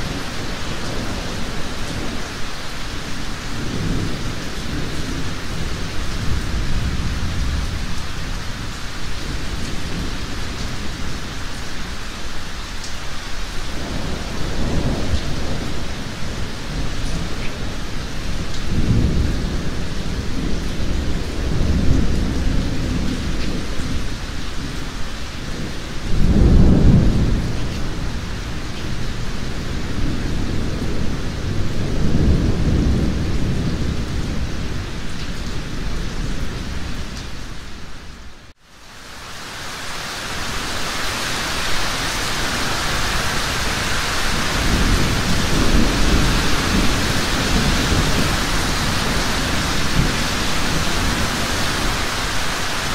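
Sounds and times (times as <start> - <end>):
heavy rain: 0.0 - 52.9
thunder rolling: 42.5 - 52.9.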